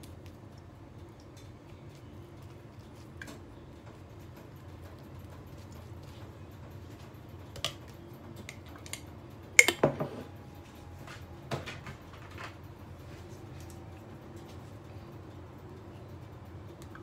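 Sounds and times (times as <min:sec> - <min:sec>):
low steady background hum: 0:00.0 - 0:17.0
kitchen utensils clicking and knocking: 0:08.4 - 0:10.2.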